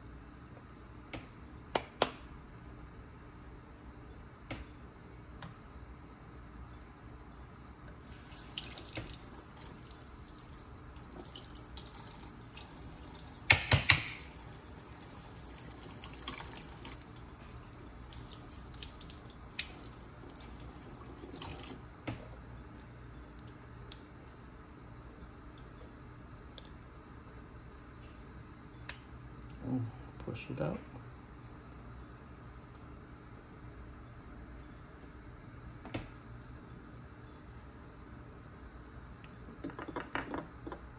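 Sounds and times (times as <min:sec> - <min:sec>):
faucet water splashing into sink: 0:08.1 - 0:21.8.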